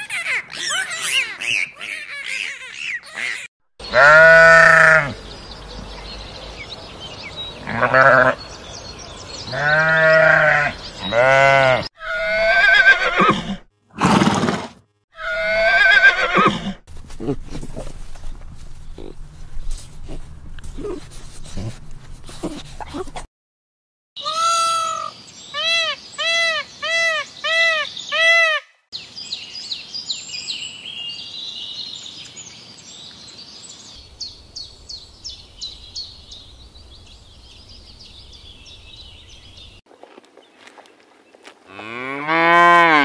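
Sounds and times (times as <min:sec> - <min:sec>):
high arching animal calls: 0:00.0 - 0:14.6, 0:15.2 - 0:17.4, 0:24.2 - 0:28.8
cow mooing: 0:03.8 - 0:05.2, 0:09.5 - 0:13.2, 0:41.7 - 0:43.0.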